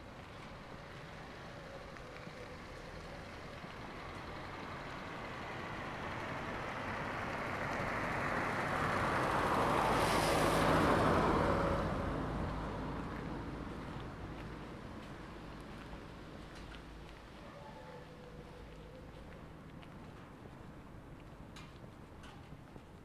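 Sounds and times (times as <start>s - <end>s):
vehicle driving past: 1.4s - 14.8s.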